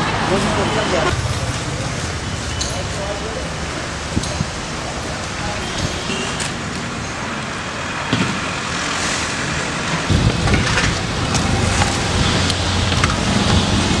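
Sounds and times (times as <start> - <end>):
road traffic noise: 0.0 - 14.0
deep low rumble: 0.5 - 5.2.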